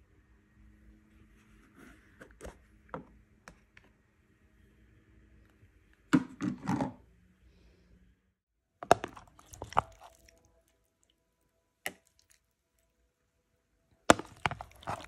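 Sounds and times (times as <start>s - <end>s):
spoon scraping plastic container: 8.8s - 10.4s, 14.1s - 15.0s.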